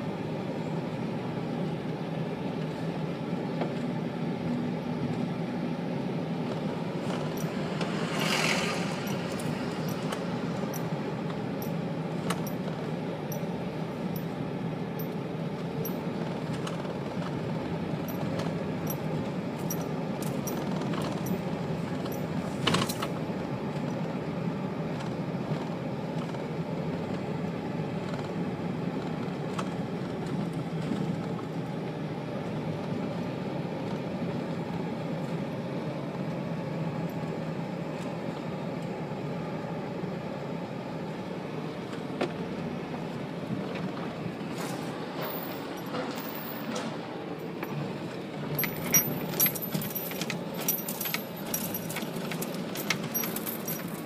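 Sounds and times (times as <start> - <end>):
car engine and tyres rumbling: 0.0 - 54.0
light clicks and rattles: 48.6 - 54.0.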